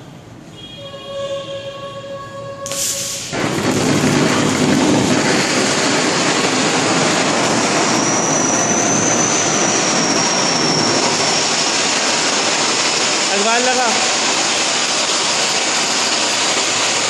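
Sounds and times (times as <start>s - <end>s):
faint high whistle: 0.5s - 3.3s, 7.9s - 11.6s
spark fountain hissing: 2.7s - 17.0s.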